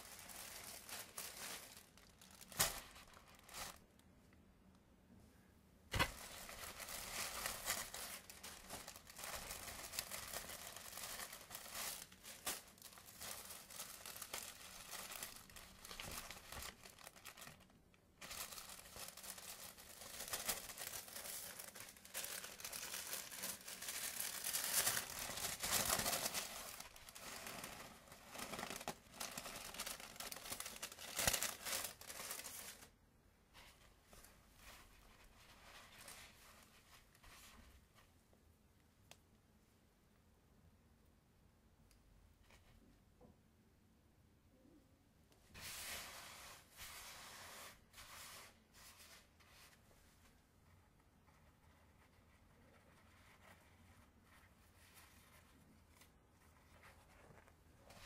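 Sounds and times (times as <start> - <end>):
paper crinkling and rustling: 0.0 - 4.0, 5.9 - 32.9, 33.6 - 38.1.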